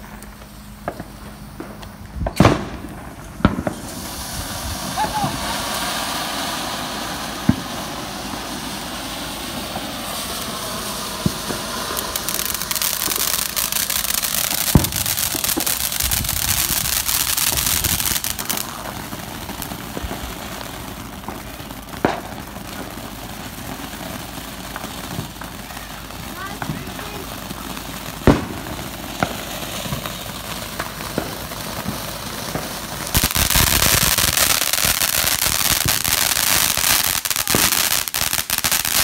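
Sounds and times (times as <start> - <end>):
fireworks pops: 0.0 - 4.4, 11.2 - 18.9, 21.2 - 23.0, 24.7 - 27.2, 27.8 - 36.8, 37.4 - 37.9
fountain fireworks hissing: 0.0 - 39.0.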